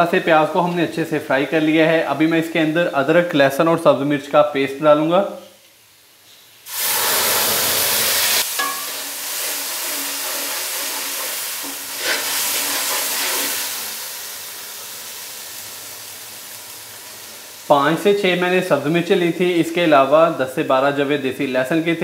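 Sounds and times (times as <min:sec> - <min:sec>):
paste sizzling in hot oil: 0:06.6 - 0:18.9
metal spatula knocking pan: 0:08.6 - 0:09.0.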